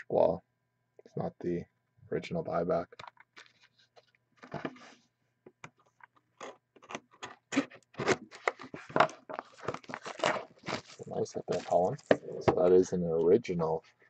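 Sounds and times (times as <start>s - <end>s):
shrink wrap crinkling: 8.0s - 12.1s.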